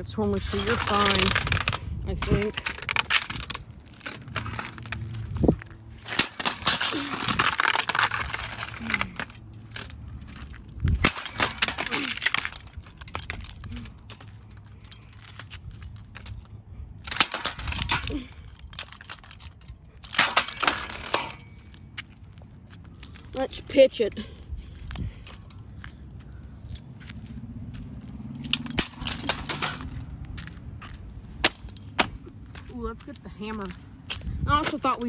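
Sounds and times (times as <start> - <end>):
tape player smashed on pavement: 10.9 - 12.8, 28.6 - 30.0.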